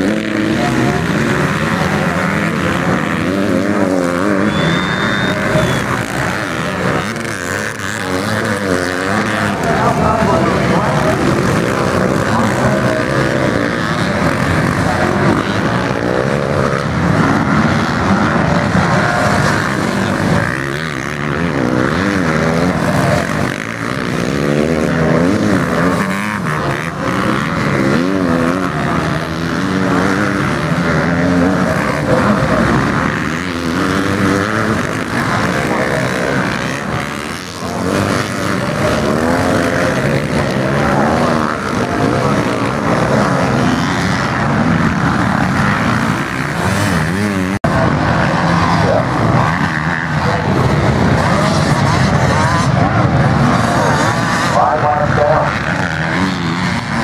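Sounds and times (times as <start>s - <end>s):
motocross bike engines revving: 0.0s - 57.0s.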